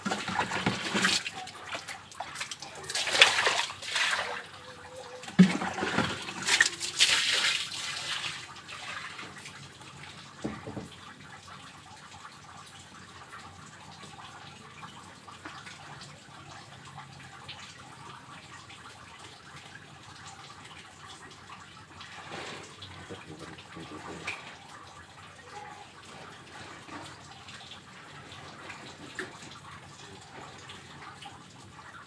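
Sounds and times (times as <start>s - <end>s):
water splashing on wet concrete: 0.0s - 4.4s, 5.4s - 9.2s
water trickling: 0.0s - 32.0s.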